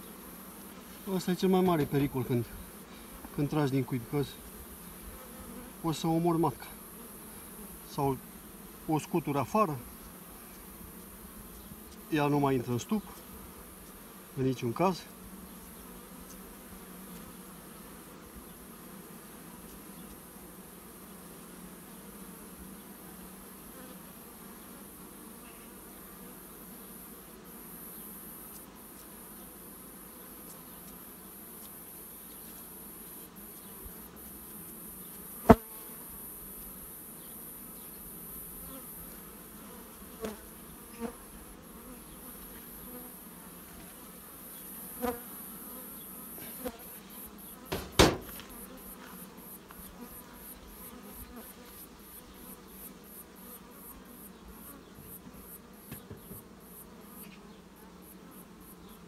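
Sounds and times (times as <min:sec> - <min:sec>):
bees buzzing: 0:00.0 - 0:59.0
sharp knocks: 0:47.7 - 0:48.4.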